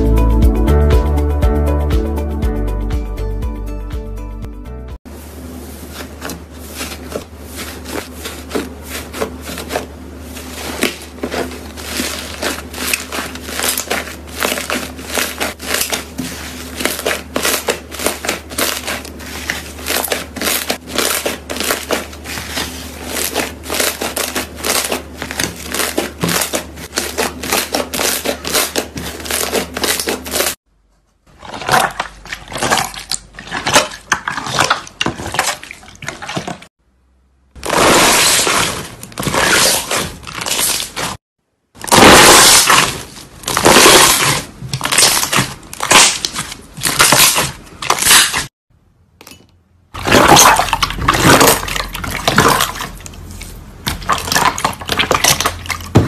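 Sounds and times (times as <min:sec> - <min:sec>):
slime crackling and popping: 0:41.8 - 0:48.5.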